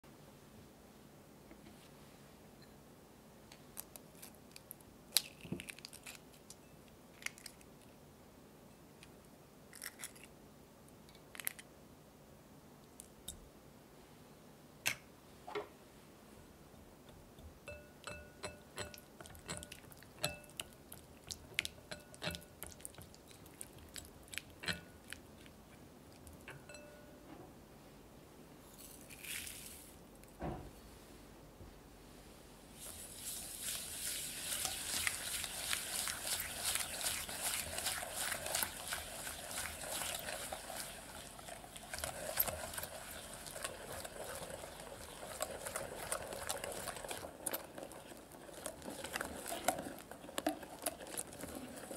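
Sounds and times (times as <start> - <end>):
eggs cracking: 3.7 - 7.7, 18.4 - 26.7, 32.9 - 51.9
whisk clinking in glass bowl: 17.7 - 20.7, 21.8 - 22.7, 26.5 - 27.1
sugar pouring: 28.8 - 30.0, 32.8 - 51.9.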